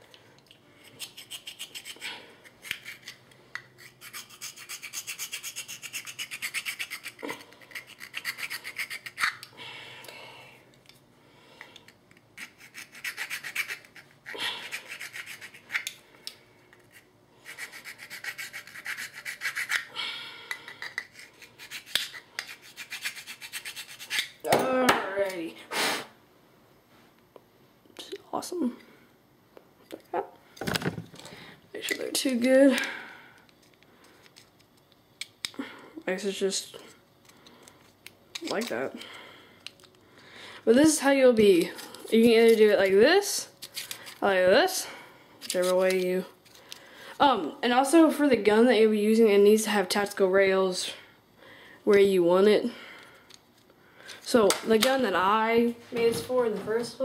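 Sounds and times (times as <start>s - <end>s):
file rasping on plastic: 3.8s - 9.3s, 17.4s - 19.9s.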